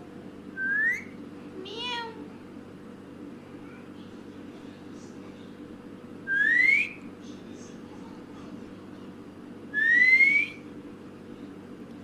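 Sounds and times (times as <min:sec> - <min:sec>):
low steady hum: 0:00.0 - 0:12.0
parakeet rising whistles: 0:00.6 - 0:01.2, 0:06.3 - 0:07.0, 0:09.8 - 0:10.6.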